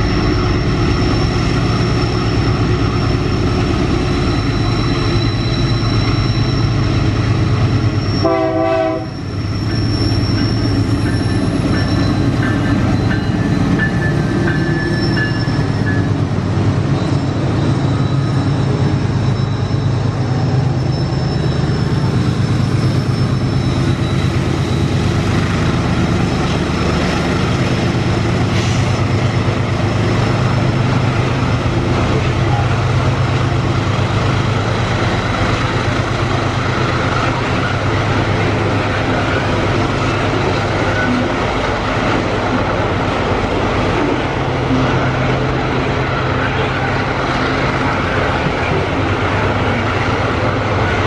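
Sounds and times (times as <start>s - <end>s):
wheel squeal: 0.0s - 8.3s, 9.0s - 16.3s, 16.9s - 25.6s
locomotive engine rumble and whine: 0.0s - 51.0s
train horn: 8.2s - 9.3s.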